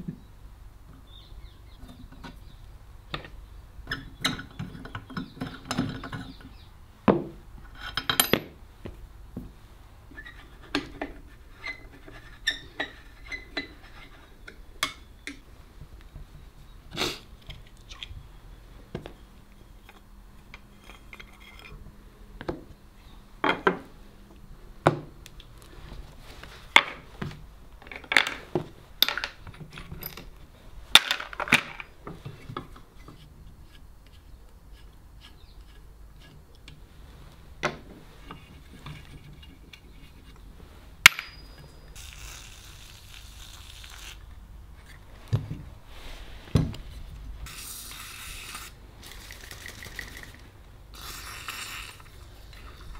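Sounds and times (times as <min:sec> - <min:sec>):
metal plane parts clinking: 0:07.7 - 0:08.6, 0:29.0 - 0:30.4, 0:41.0 - 0:41.9
sharp clink with ring: 0:41.1 - 0:41.8.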